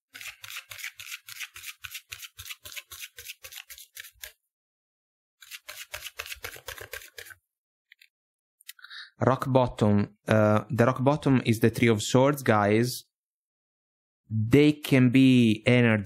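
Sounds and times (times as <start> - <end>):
cards being shuffled: 0.1 - 4.4, 5.4 - 7.4.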